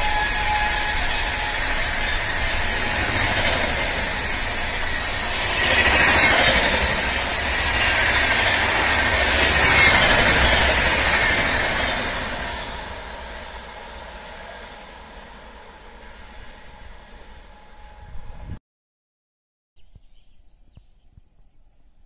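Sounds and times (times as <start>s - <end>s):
train wheels rumbling on rail: 0.0s - 18.6s.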